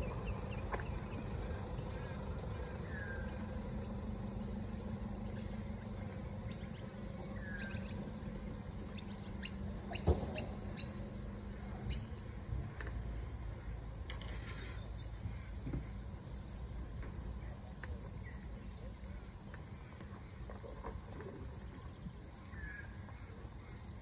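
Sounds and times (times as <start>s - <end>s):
steady low hum: 0.0s - 24.0s
bird chirps: 5.1s - 12.4s.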